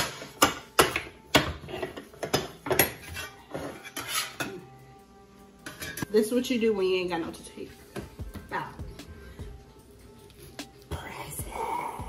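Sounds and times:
spatula scraping: 0:01.7 - 0:04.6.

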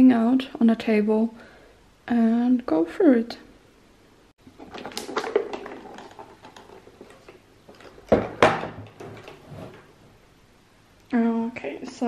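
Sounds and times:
loud knocks on wooden table: 0:08.1 - 0:08.9.

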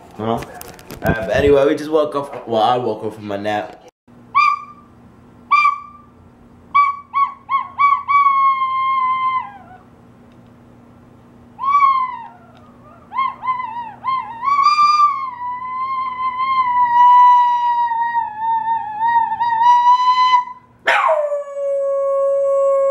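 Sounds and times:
dog yipping and howling: 0:04.3 - 0:04.9, 0:05.5 - 0:06.1, 0:06.7 - 0:09.9, 0:11.6 - 0:22.9.

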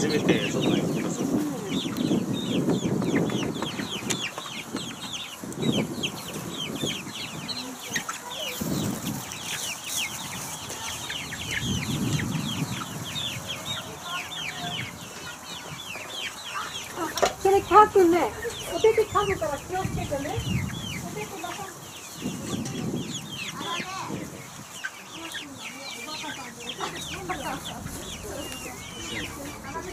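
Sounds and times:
chicks peeping: 0:00.0 - 0:29.9
low rumbles: 0:27.0 - 0:29.9.

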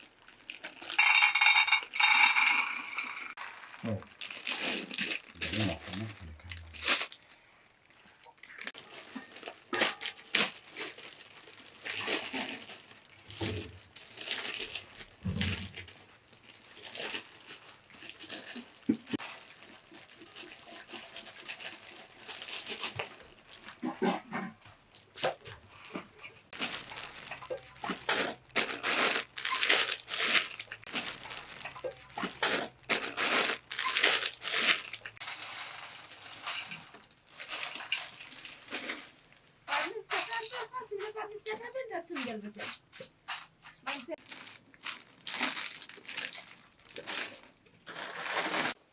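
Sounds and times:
material rustling and crinkling: 0:00.0 - 0:48.9.

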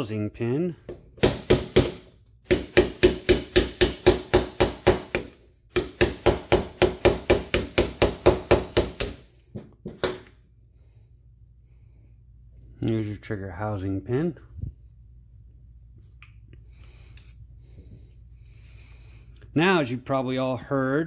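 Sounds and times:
hammer tapping a pin punch: 0:00.9 - 0:10.3.

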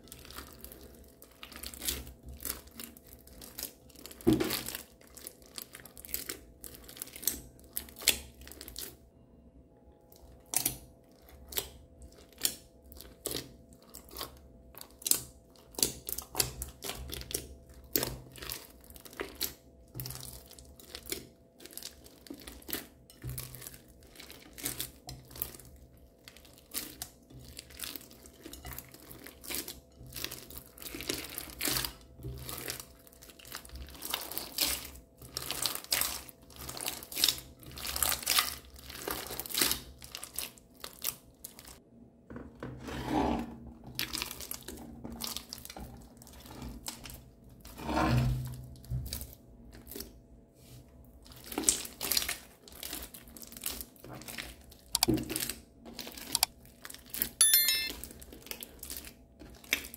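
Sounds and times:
slime crackling and popping: 0:26.3 - 0:41.8.

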